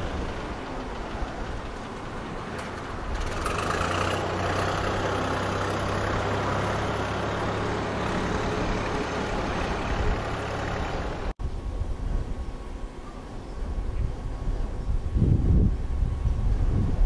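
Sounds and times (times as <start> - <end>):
tractor engine running: 0.0 - 11.4.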